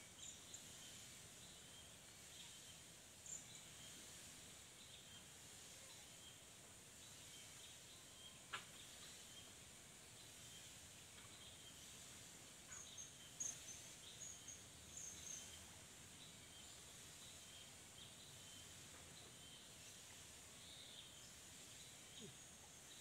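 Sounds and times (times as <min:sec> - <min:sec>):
high insect hiss: 0:00.0 - 0:23.0
bird chirps: 0:12.6 - 0:23.0.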